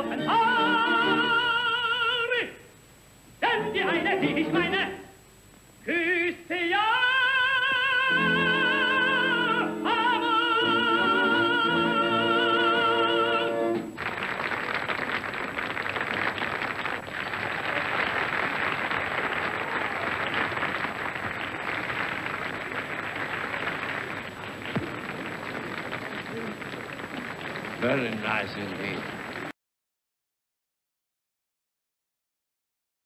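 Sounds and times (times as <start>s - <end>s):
audience applauding: 14.0s - 29.5s
orchestra sustaining: 24.5s - 29.5s.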